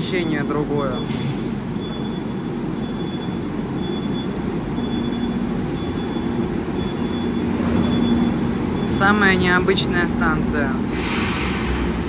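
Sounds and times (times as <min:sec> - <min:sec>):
train wheels rumbling on track: 0:04.5 - 0:12.0.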